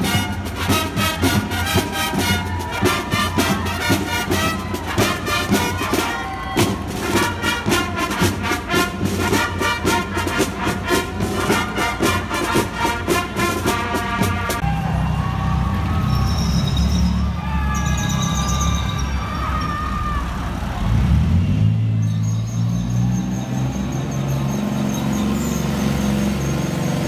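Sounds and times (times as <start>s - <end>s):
steady drum beat: 0.0s - 14.7s
marching band brass music: 0.0s - 15.4s.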